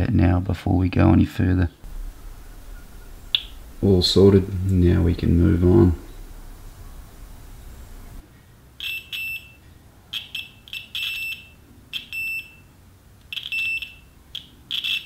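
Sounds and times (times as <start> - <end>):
continuity tester beeping: 1.9 - 8.2, 10.4 - 12.7, 13.3 - 15.0.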